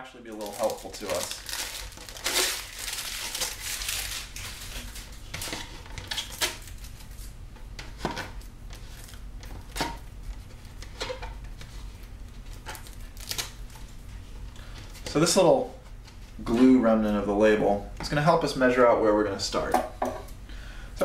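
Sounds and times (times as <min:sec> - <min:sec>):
plastic label crinkling: 0:00.2 - 0:07.4, 0:08.3 - 0:15.0.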